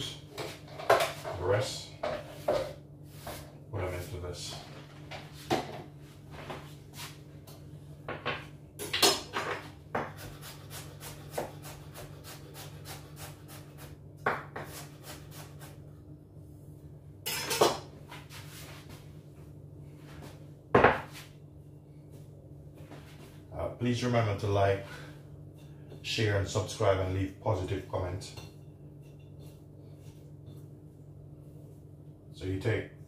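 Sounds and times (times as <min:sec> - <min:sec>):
knife chopping on wooden board: 0:09.9 - 0:13.0.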